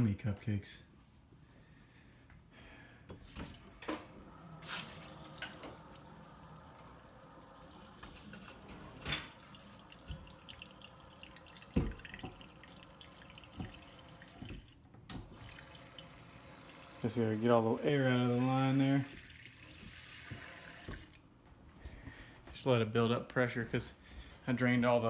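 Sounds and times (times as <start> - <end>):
faucet running into bowl: 3.3 - 21.2
pops and knocks in water pipe: 11.7 - 12.4.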